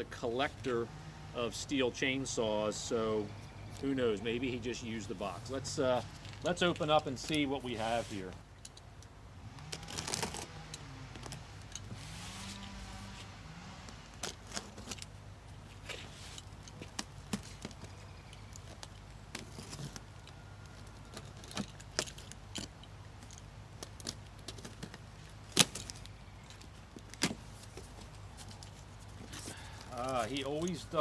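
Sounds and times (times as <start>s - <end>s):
cardboard handling clicks and scrapes: 9.8s - 15.1s, 15.7s - 22.3s.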